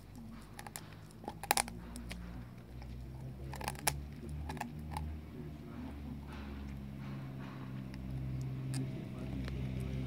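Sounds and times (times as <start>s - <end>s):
dog chewing a bone: 0.0s - 5.2s.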